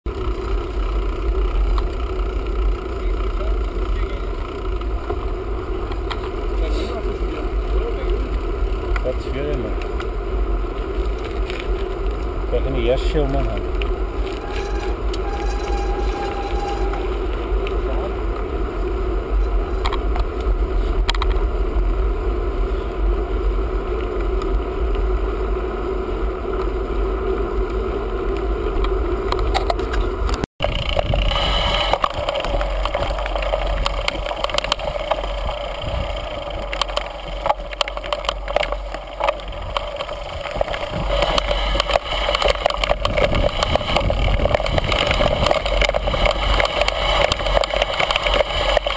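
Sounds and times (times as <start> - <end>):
bike rattling over rocks: 0.1 - 18.6, 29.3 - 48.9
tyres rolling on paved road: 0.1 - 48.9
wind rumbling on microphone: 0.1 - 48.9.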